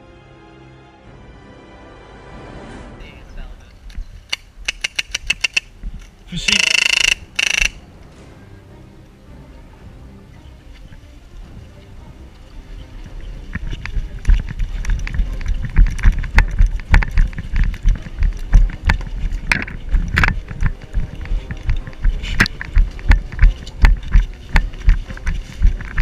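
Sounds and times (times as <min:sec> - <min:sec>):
running footsteps: 0:09.4 - 0:26.0
leaves and branches brushing: 0:10.5 - 0:26.0
gear and camera jolting: 0:13.6 - 0:26.0.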